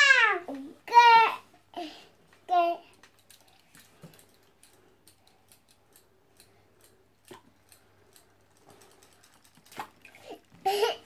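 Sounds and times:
faint ticks and clicks: 0:02.2 - 0:10.7.

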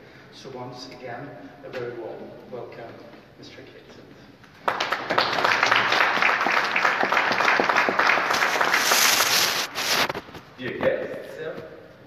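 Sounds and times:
audience applauding: 0:04.6 - 0:09.7.

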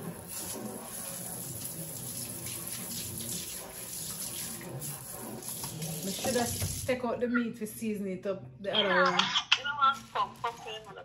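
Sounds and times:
faucet water rushing into sink: 0:00.0 - 0:07.0.

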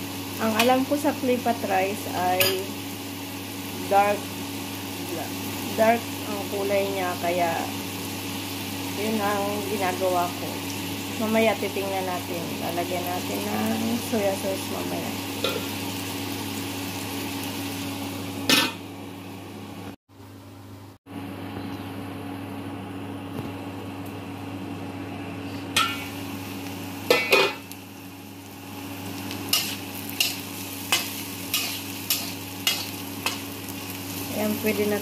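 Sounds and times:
vegetables sizzling in a wok: 0:00.0 - 0:20.0, 0:24.4 - 0:35.0
metal spatula scraping wok: 0:29.5 - 0:33.5.

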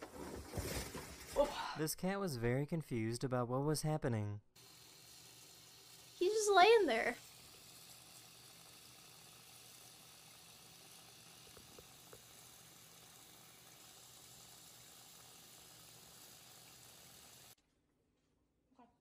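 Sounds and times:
tap water running into sink: 0:04.6 - 0:17.6.

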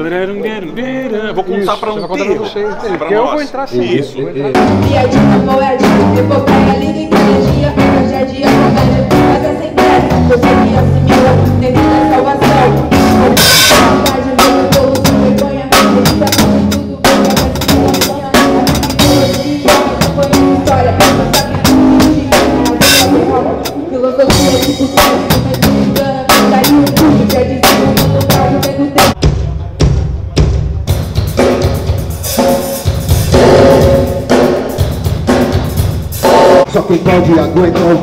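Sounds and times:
drum kit beat: 0:04.5 - 0:38.0
electric bass line: 0:04.6 - 0:29.2.

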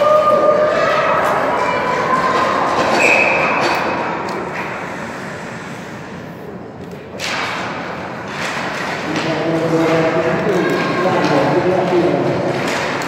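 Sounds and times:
puck clack and scrape: 0:02.2 - 0:06.2, 0:06.8 - 0:13.0
skates and sticks on ice: 0:07.2 - 0:13.0.

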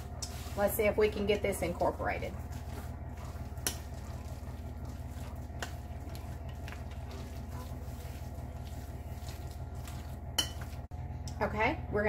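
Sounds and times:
spoon stirring thick mixture: 0:00.0 - 0:10.9
steady low hum: 0:00.0 - 0:12.0
spoon scraping glass bowl: 0:02.4 - 0:10.8.

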